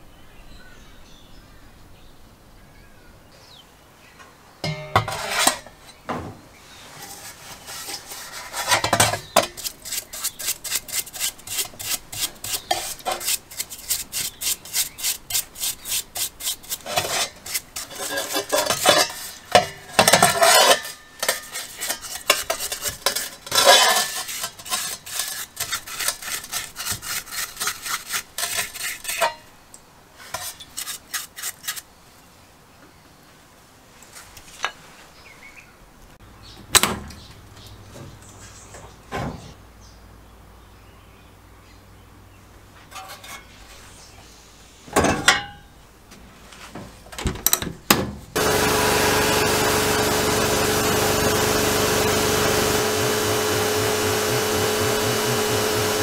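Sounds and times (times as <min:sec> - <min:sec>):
brush scrubbing wet metal: 0:06.9 - 0:29.3, 0:30.2 - 0:31.8, 0:48.4 - 0:56.0.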